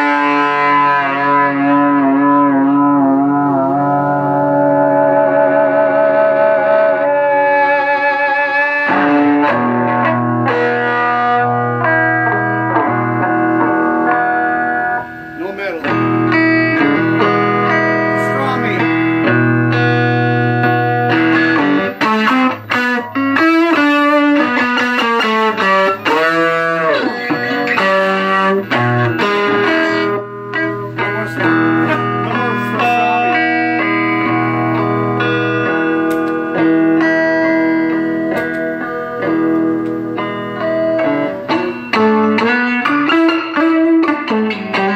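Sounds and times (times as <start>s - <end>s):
electric guitar through tube amp: 0.0s - 44.9s.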